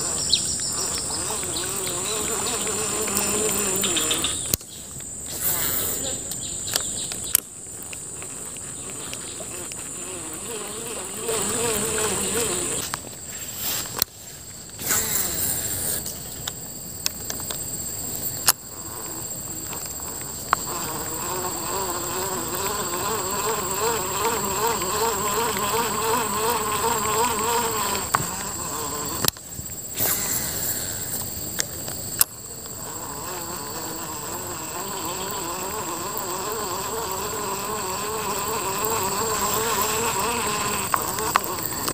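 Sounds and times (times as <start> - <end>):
small insect buzzing: 0.0 - 14.0, 14.8 - 16.4, 18.2 - 41.9
high insect drone: 0.0 - 41.9.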